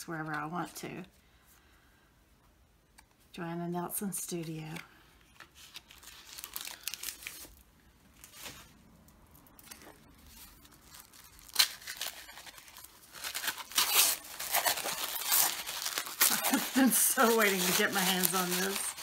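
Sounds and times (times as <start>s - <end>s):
paper wrapping rustling and tearing: 5.4s - 19.0s.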